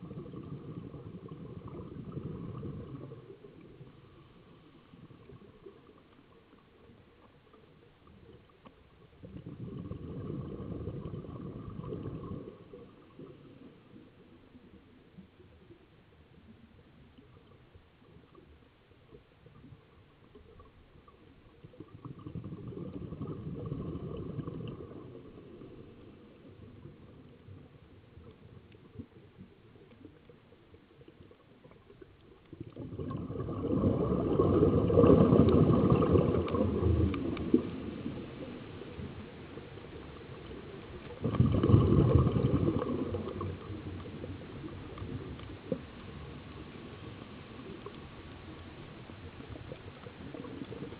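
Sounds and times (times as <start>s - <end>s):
underwater breath bubbling: 0.0s - 6.0s, 9.2s - 14.0s, 21.8s - 29.0s, 32.4s - 50.9s.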